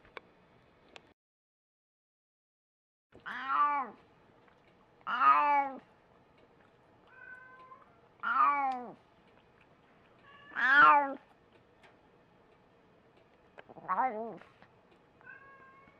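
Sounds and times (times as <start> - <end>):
cat meowing loudly: 3.2 - 4.0, 5.1 - 5.8, 7.1 - 9.0, 10.3 - 11.2, 15.2 - 15.9.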